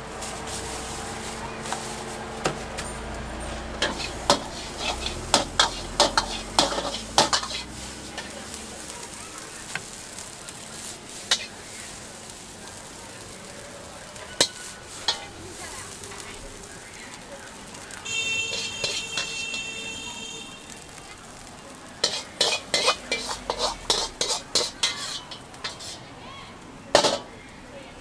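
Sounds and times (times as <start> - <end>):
food sizzling: 0.0 - 28.0
spatula clanking on wok: 3.8 - 8.8, 14.4 - 15.3, 18.5 - 19.6, 22.0 - 26.1, 26.9 - 27.3.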